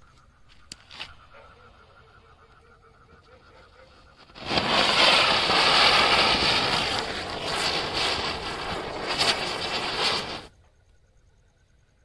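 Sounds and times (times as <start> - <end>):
sharp crackling pops: 0.1 - 1.8, 3.4 - 10.8
firework spinner hissing: 3.6 - 10.6.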